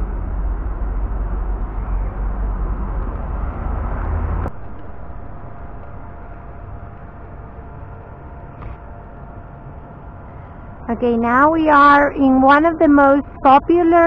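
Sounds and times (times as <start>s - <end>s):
outdoor street noise: 0.0s - 14.0s
faint steady hum: 4.5s - 14.0s.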